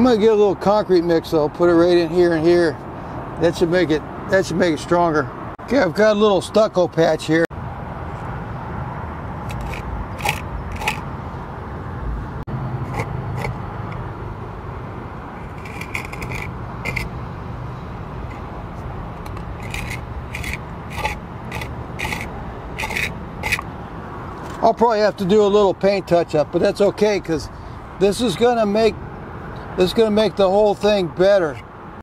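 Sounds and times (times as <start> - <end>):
putty knife scraping stucco: 9.5 - 11.0, 12.8 - 13.6, 15.4 - 17.1, 19.2 - 23.7.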